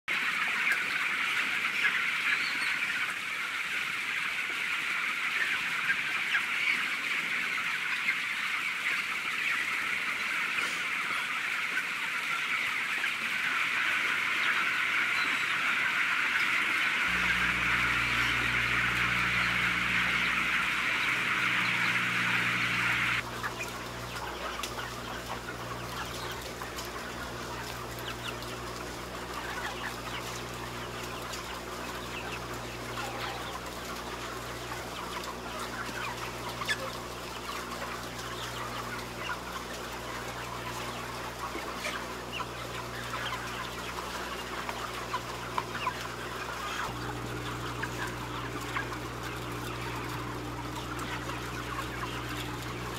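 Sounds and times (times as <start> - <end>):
chicks cheeping: 0.1 - 52.9
low mechanical hum: 17.0 - 52.9.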